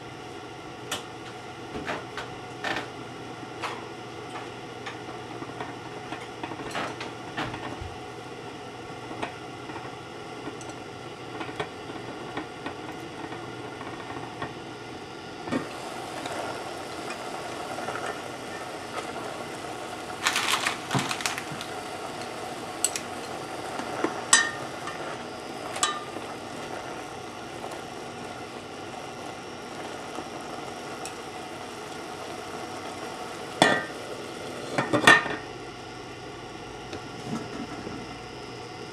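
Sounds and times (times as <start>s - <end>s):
noodles bubbling in broth: 2.4s - 38.7s
glass pot lid clinking: 24.3s - 25.0s.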